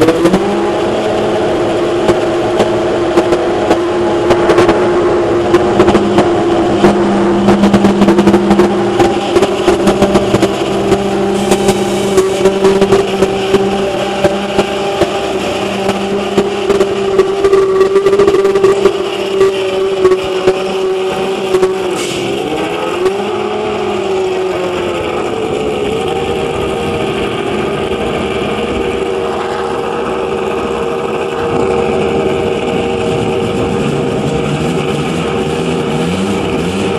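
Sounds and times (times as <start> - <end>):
racing car engine fast idle: 0.0 - 36.9.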